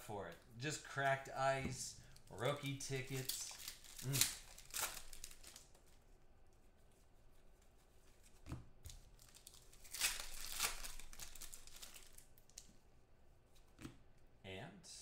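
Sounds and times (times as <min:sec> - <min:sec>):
foil wrapper tearing and crinkling: 0:02.6 - 0:05.9, 0:09.0 - 0:12.6.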